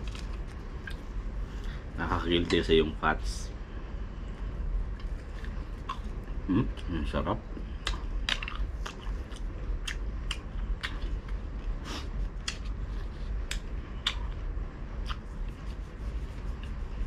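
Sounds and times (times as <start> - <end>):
low steady hum: 0.0 - 17.0
crunchy open-mouthed chewing: 5.0 - 6.9, 7.6 - 16.8.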